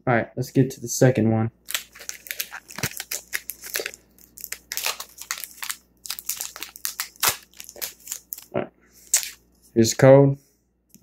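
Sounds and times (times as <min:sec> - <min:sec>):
foil wrapper crinkling: 0:01.6 - 0:09.4.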